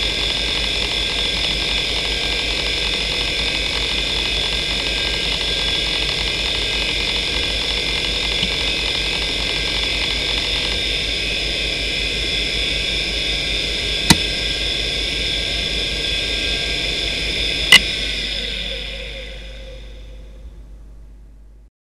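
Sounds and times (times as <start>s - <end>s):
hard drive seek chatter: 0.0s - 20.9s
hard drive spinning down: 0.0s - 21.4s
hard drive whine and hiss: 0.0s - 21.7s.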